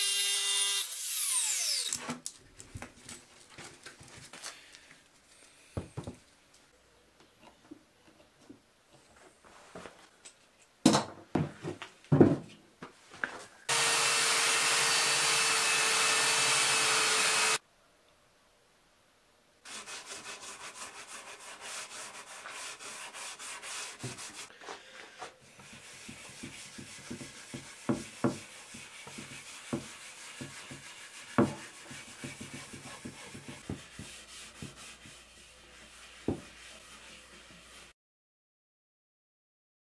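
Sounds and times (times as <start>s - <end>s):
electric orbital sander: 0.0s - 1.9s, 13.7s - 17.6s
power tool running: 0.0s - 2.0s, 13.7s - 17.6s
sanding block on wood: 19.7s - 24.5s, 25.4s - 37.9s.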